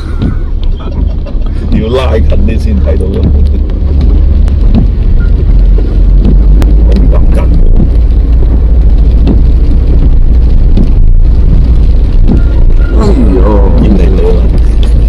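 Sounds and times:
vehicle rumbling: 0.0s - 15.0s.

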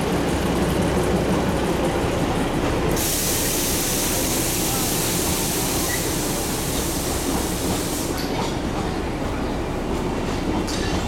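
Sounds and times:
train rumbling past: 0.0s - 11.0s.

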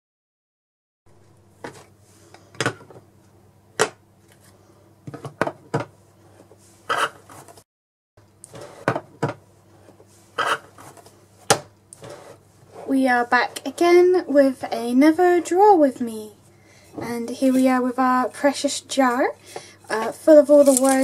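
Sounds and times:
steady low hum: 8.2s - 21.0s.

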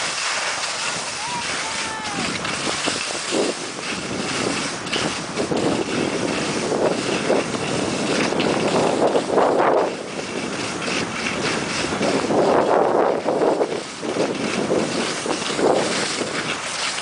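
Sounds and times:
skis hissing on snow: 0.0s - 17.0s
wind rushing over microphone: 0.0s - 17.0s.

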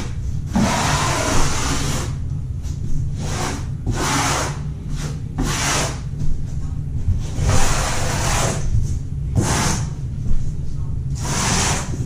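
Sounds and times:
steady low hum: 0.0s - 12.0s
trowel scraping mortar: 7.4s - 8.6s, 11.2s - 12.0s.

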